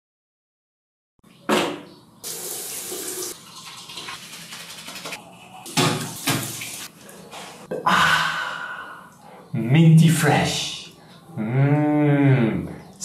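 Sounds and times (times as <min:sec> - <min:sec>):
tap running into sink: 0:04.8 - 0:06.8.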